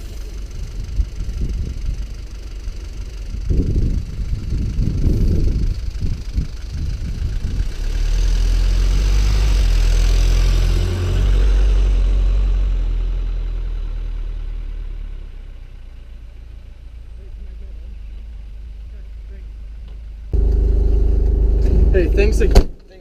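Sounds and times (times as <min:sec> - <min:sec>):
car driving past: 0:07.6 - 0:15.8.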